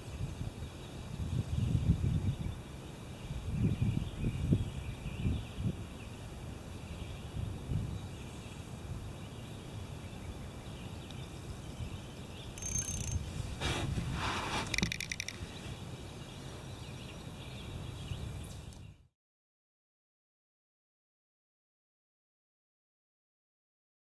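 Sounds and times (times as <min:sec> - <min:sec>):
wind buffeting microphone: 0:00.1 - 0:02.6, 0:03.2 - 0:06.0, 0:07.2 - 0:08.2, 0:13.2 - 0:15.8
clicking and rattling: 0:14.6 - 0:15.4.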